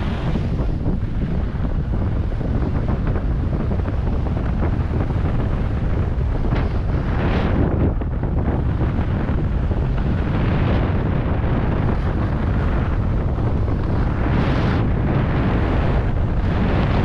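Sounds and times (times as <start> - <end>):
skis sliding on snow: 0.0 - 0.7
wind buffeting microphone: 0.0 - 17.0.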